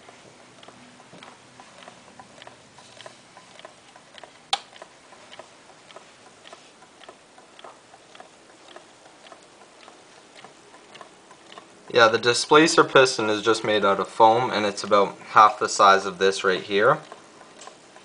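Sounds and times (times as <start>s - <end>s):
small engine rods clicking: 15.6s - 18.0s.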